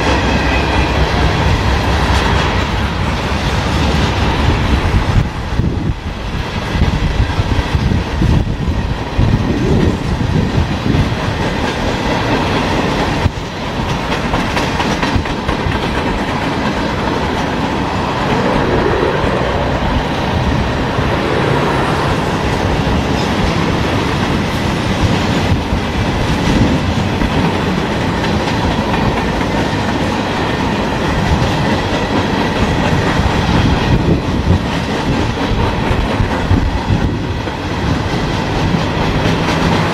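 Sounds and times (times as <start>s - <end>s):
freight train rolling past: 0.0s - 39.9s
wheel clicks on rail: 10.6s - 17.6s.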